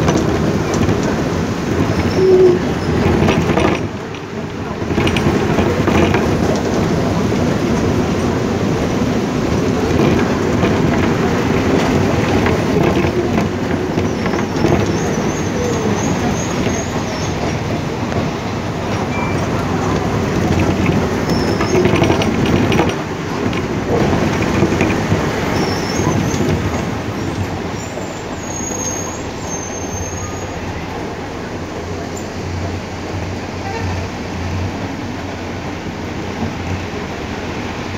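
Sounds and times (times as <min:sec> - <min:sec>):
heavy rain on vehicle: 0:00.0 - 0:29.5
car engine and road noise: 0:00.0 - 0:37.9
faint high squeaks: 0:27.8 - 0:30.8.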